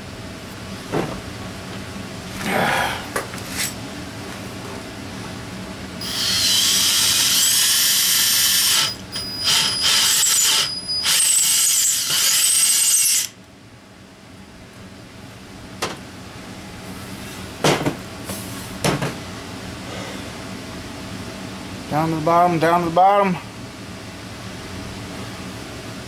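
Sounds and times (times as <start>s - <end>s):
power drill whining into metal: 6.0s - 13.4s.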